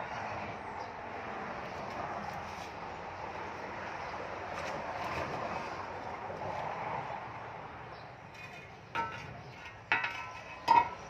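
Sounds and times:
shovel blade clanking on concrete: 8.3s - 11.0s.

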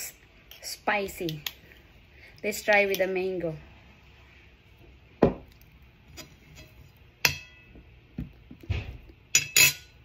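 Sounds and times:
metal spoon clinking on glass: 9.3s - 10.0s.

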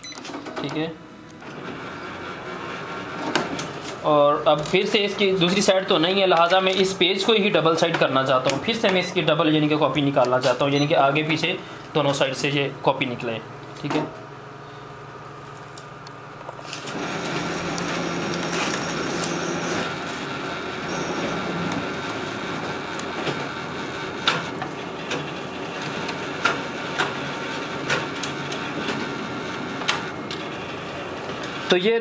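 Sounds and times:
photocopier motors whirring: 16.4s - 31.8s.

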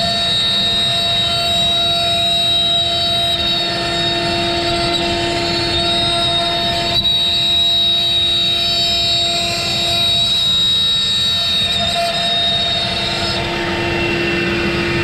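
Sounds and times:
router spindle whine: 0.0s - 15.0s.

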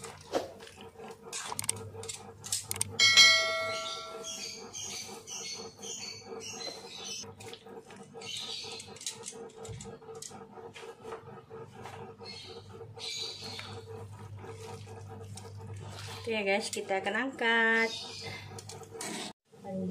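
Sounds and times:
steady low hum: 0.0s - 19.9s
light chirps and clicks: 1.4s - 2.9s
metallic clang ringing: 3.0s - 4.4s.

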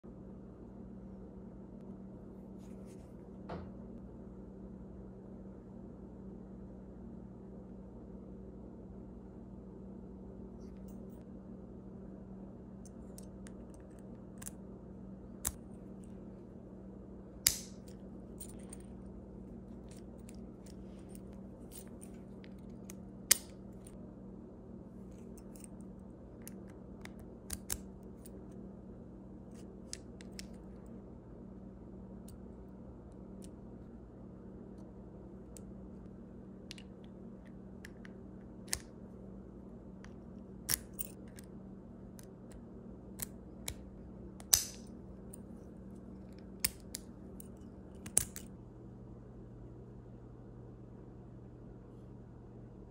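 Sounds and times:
steady low hum: 0.0s - 52.9s
padlock clicks and snaps: 48.0s - 48.5s.

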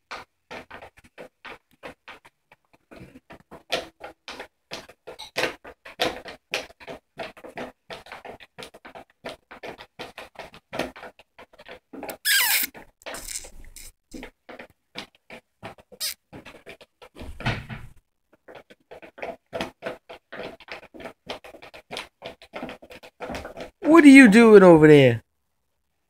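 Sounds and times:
cat scratching crinkly plastic: 18.4s - 23.8s.

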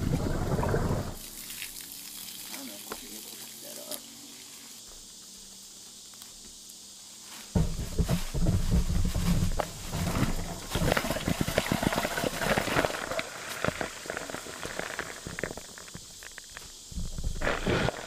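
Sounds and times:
ice knocking and rattling: 7.6s - 17.8s
ice clattering into bucket: 9.2s - 15.7s.

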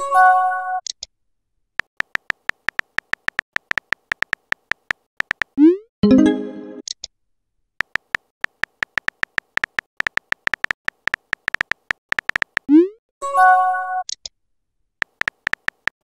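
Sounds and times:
phone keyboard typing clicks: 1.8s - 5.6s, 7.8s - 12.7s, 15.0s - 16.0s.

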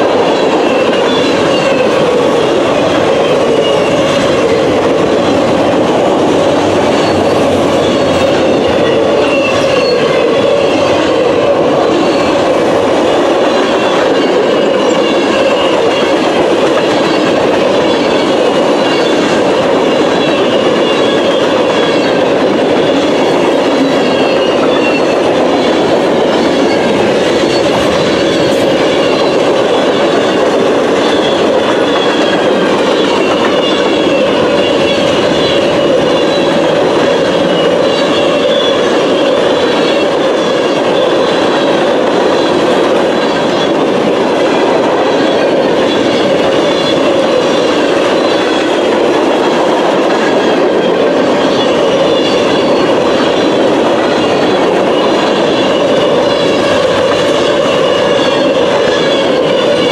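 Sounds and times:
freight train wheels rumbling: 0.0s - 59.9s
high wavering squeal: 0.7s - 11.3s, 22.8s - 40.0s.

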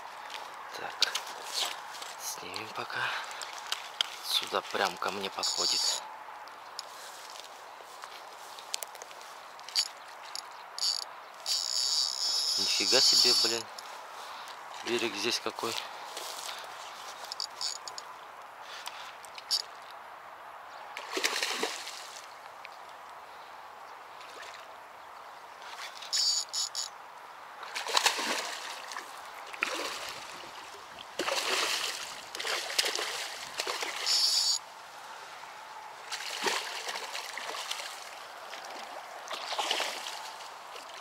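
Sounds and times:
fish thrashing and splashing: 27.7s - 30.4s, 31.2s - 34.6s, 36.1s - 41.0s.

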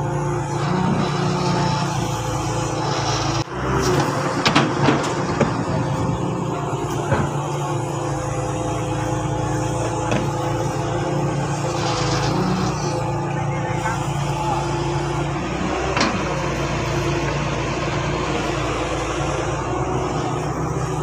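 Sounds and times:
diesel engines running: 0.0s - 21.0s.

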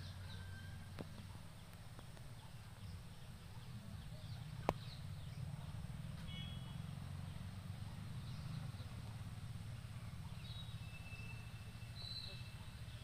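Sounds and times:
faint bird whistles: 10.3s - 13.0s.

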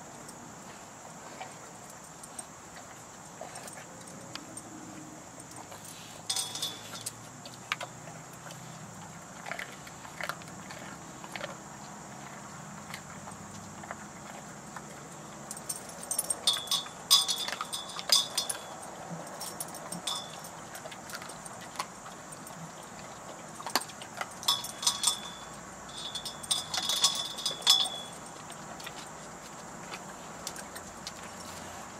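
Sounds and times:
metal jangling and clinking: 3.4s - 7.9s, 15.0s - 31.7s.

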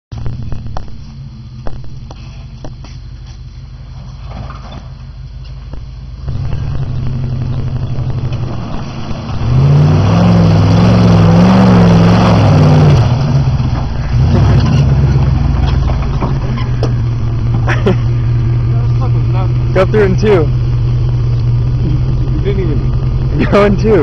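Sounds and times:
pickup truck engine revving: 6.2s - 24.0s.

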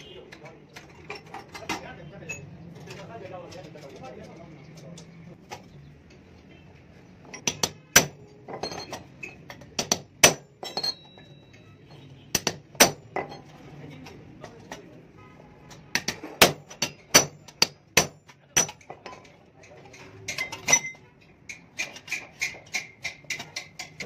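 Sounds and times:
hammer striking metal punch: 7.3s - 9.0s, 9.7s - 11.0s, 12.3s - 13.4s, 15.8s - 19.0s.

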